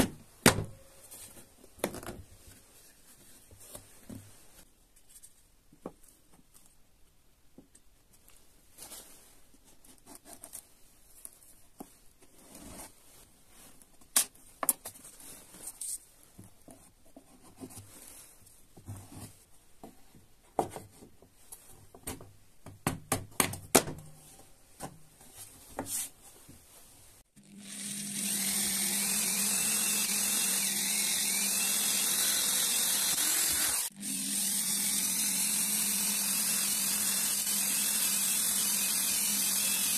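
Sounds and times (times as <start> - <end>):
electric drill boring wood: 27.4 - 39.9.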